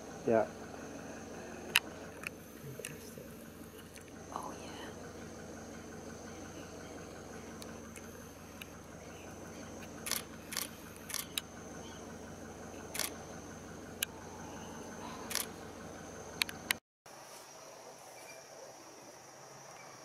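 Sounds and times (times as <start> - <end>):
night insects droning: 0.0 - 20.0
camera shutter clicks: 10.1 - 11.4, 13.0 - 13.2.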